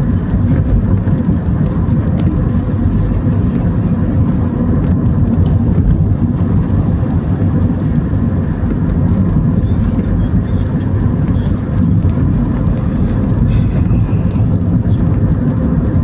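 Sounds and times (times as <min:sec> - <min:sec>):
car driving on wet road: 0:00.0 - 0:16.0.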